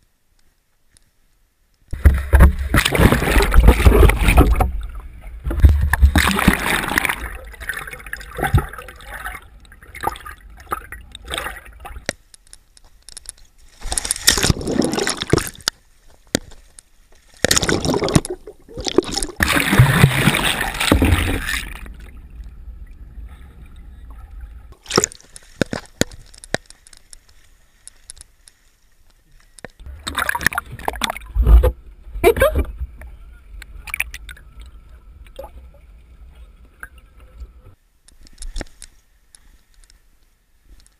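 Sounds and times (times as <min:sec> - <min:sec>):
seawater sloshing and splashing: 0:02.0 - 0:12.1, 0:17.2 - 0:22.2.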